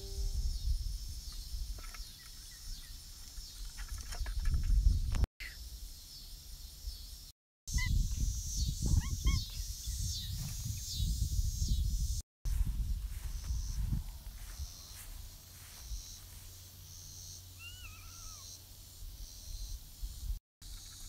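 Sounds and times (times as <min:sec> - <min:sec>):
low rumble on microphone: 0:00.0 - 0:01.2, 0:07.9 - 0:15.3
short pitched animal calls: 0:17.6 - 0:18.6.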